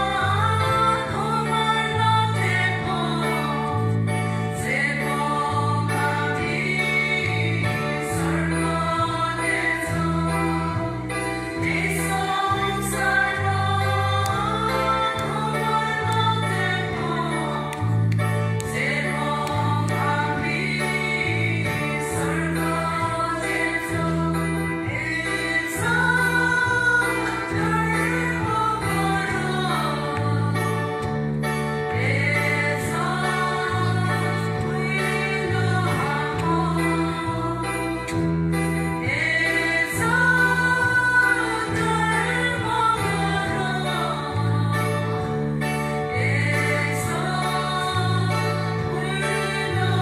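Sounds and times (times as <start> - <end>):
women's choir singing a hymn: 0.0 - 50.0.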